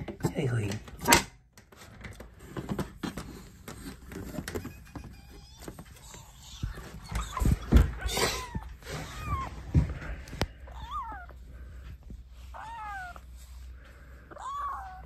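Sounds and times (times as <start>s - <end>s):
knocks and rustling from handling: 0.0s - 10.6s
kitten meowing: 10.7s - 11.4s, 12.5s - 13.2s, 14.3s - 15.0s.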